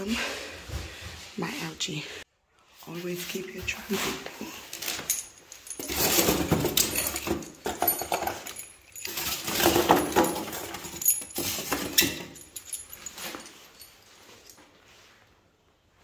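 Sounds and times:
metal bolts clinking: 4.7 - 14.6.

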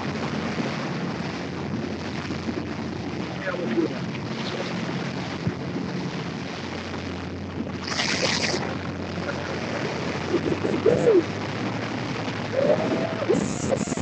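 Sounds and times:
boat engine running: 0.0 - 14.0
choppy water washing: 0.0 - 14.0
wind noise on microphone: 0.0 - 14.0.

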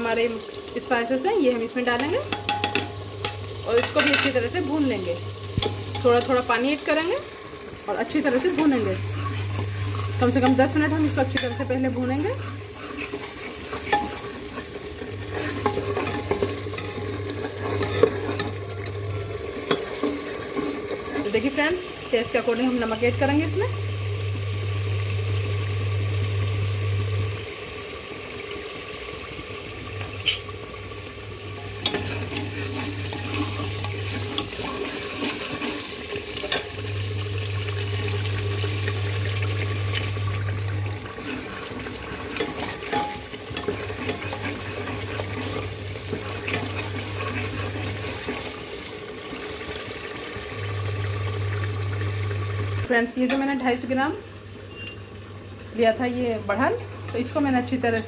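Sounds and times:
spices sizzling in oil: 0.0 - 58.0
ladle stirring in pot: 1.9 - 21.4, 31.5 - 36.8, 39.6 - 49.8.

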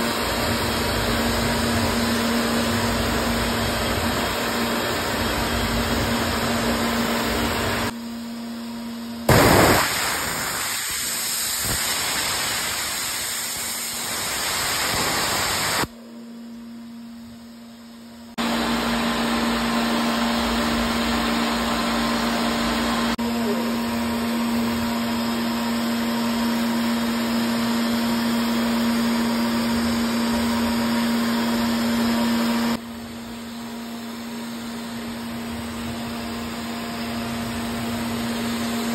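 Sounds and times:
vacuum pump humming: 0.0 - 8.1, 9.2 - 38.9
brief loud burst: 9.3 - 15.9
cnc router carving: 18.3 - 38.9.

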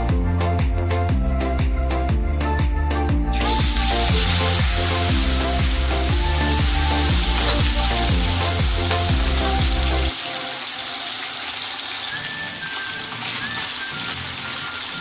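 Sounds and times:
background music with bass beat: 0.0 - 10.2
fish sizzling in oil: 3.3 - 15.0.

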